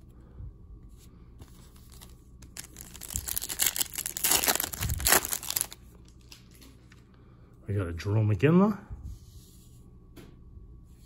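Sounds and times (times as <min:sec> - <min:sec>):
foil wrapper crinkling and tearing: 0:01.8 - 0:06.6.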